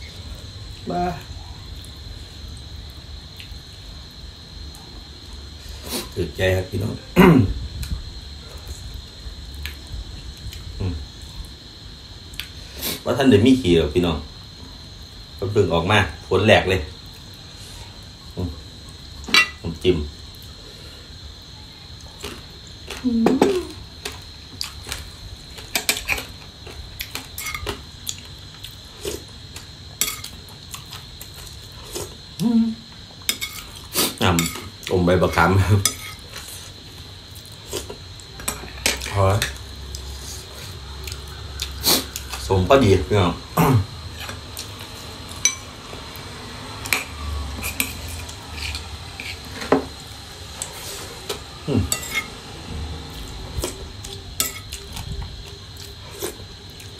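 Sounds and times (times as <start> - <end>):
cutlery clinking on a plate: 19.3 - 19.6, 30.0 - 30.4, 45.4 - 45.6.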